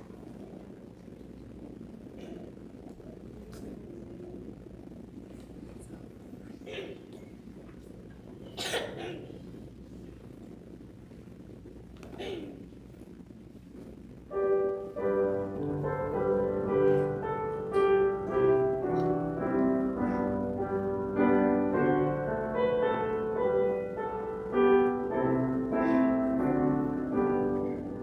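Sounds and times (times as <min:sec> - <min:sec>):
piano playing chords: 0:14.3 - 0:28.0.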